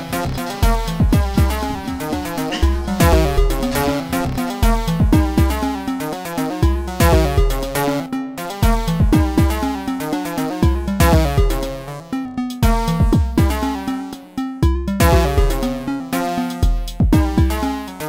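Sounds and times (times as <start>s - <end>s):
kick drum with falling pitch: 0.7s - 5.7s
short synth notes: 1.2s - 5.7s.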